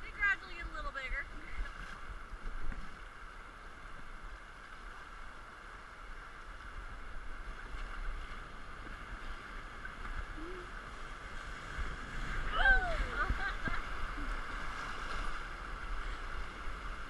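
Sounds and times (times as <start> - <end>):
river water rushing: 0.0 - 17.0
wind on microphone: 5.4 - 17.0.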